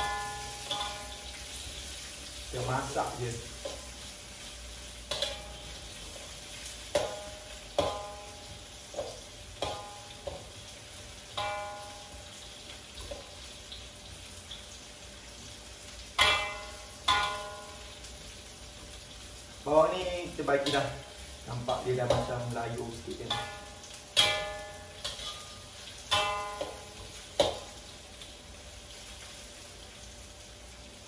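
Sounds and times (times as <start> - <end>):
onions frying in oil: 0.0 - 31.0
metal spatula knocking on wok: 6.9 - 10.5, 11.4 - 12.2, 16.2 - 17.9, 20.6 - 22.5, 23.2 - 27.8.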